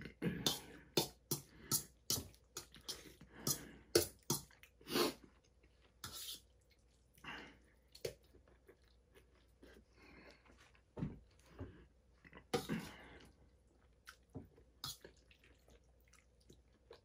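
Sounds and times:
person chewing: 0:00.0 - 0:17.0
fork scraping a steel bowl: 0:06.0 - 0:06.5.

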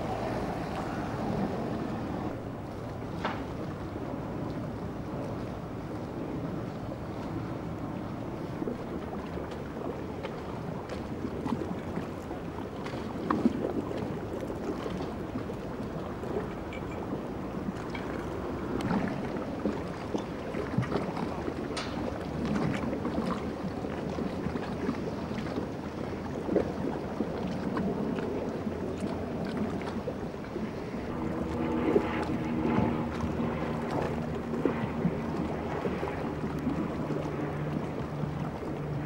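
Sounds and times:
boat engines running: 0:00.0 - 0:39.0
wind on microphone: 0:00.0 - 0:39.0.

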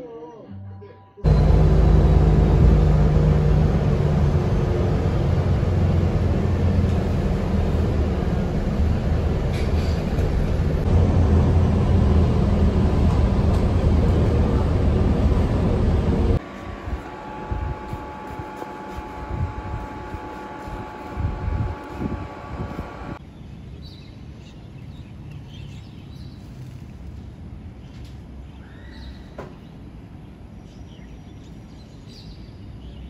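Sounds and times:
bus engine hum and rumble: 0:01.2 - 0:23.2
fan hum: 0:01.2 - 0:23.2.

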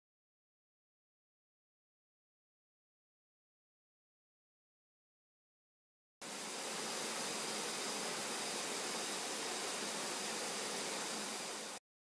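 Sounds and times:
water rushing over rocks: 0:06.2 - 0:11.8.

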